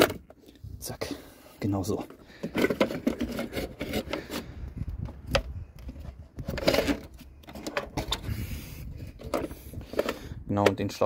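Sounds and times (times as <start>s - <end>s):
plastic parts clicking and rattling: 2.0s - 4.5s, 5.1s - 8.3s, 9.1s - 11.0s.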